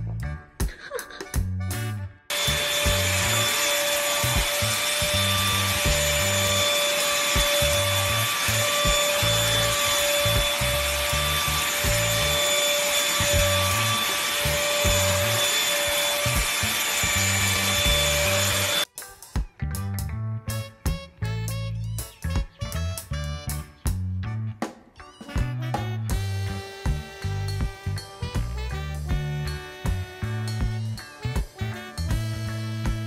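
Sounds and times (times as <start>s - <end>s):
stick vacuum cleaner whining: 2.3s - 18.9s.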